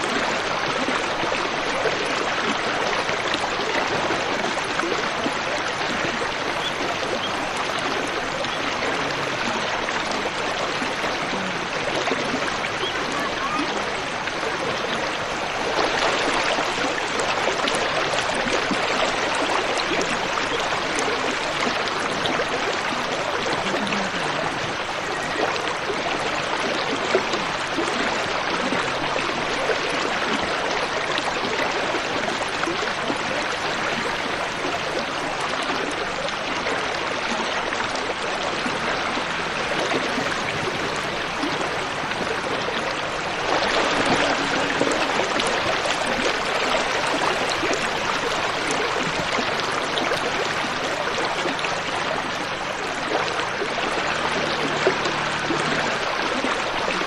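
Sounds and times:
car driving through water: 0:00.0 - 0:57.0
river water rushing: 0:00.0 - 0:57.0.

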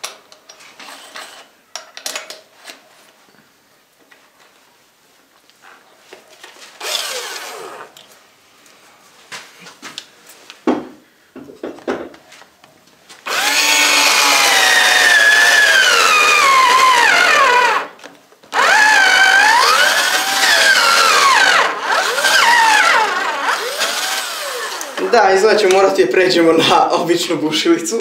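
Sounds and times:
cordless drill boring cardboard: 0:06.8 - 0:08.0, 0:13.2 - 0:25.1.

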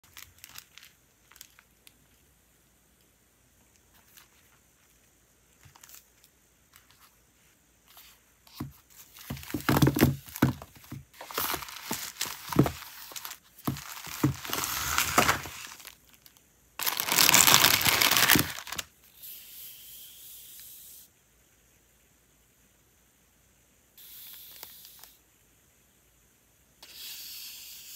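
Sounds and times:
paper wrapping crinkling: 0:00.0 - 0:02.2, 0:05.6 - 0:07.2, 0:07.9 - 0:18.9
faint hiss: 0:00.0 - 0:27.9
tape ripping off roll: 0:09.3 - 0:16.0, 0:16.8 - 0:18.9.

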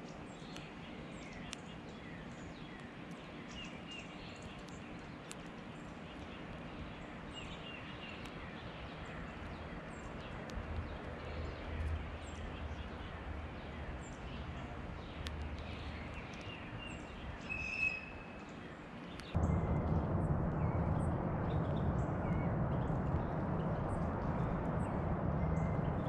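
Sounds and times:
beak pecking clicks: 0:00.4 - 0:01.8, 0:02.8 - 0:19.4
low background rumble: 0:04.2 - 0:18.1, 0:19.1 - 0:26.0
high bird chirps: 0:11.6 - 0:18.6.

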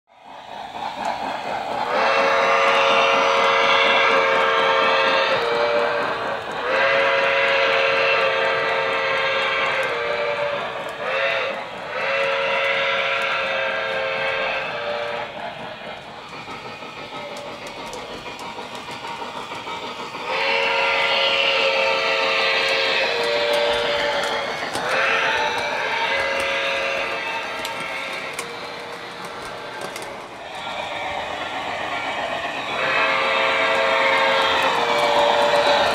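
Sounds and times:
train clicking over track: 0:00.1 - 0:35.9
steam train whistle blasts: 0:01.9 - 0:15.4, 0:20.1 - 0:35.9.

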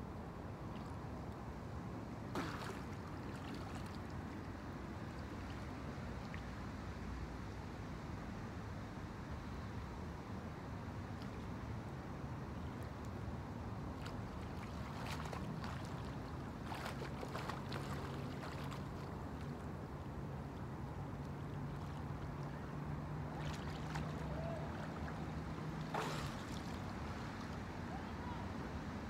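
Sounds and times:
low steady hum: 0:00.0 - 0:29.0
wind and water hiss: 0:00.0 - 0:29.0
water splashing at shore: 0:02.3 - 0:04.3, 0:13.9 - 0:19.7, 0:21.3 - 0:28.1.

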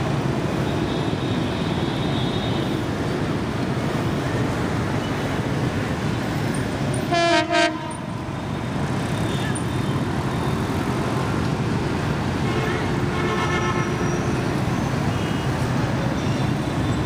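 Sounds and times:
diesel locomotive rumbling: 0:00.0 - 0:17.0
street traffic: 0:00.0 - 0:17.0
train horn blasts: 0:07.1 - 0:08.1, 0:12.4 - 0:14.3.

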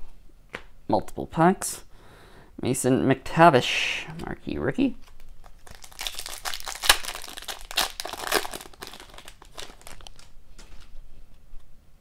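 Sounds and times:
foil wrapper crinkling: 0:05.1 - 0:10.9.

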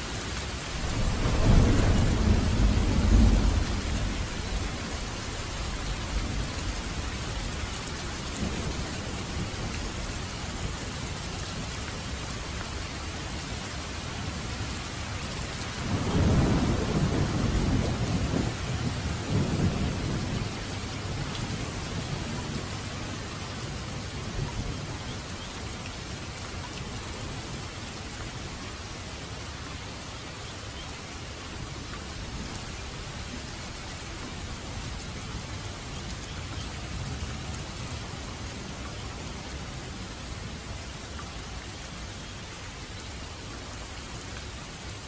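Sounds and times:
heavy rain falling: 0:00.0 - 0:45.0
thunder rumbling: 0:00.6 - 0:11.7, 0:15.7 - 0:25.4.

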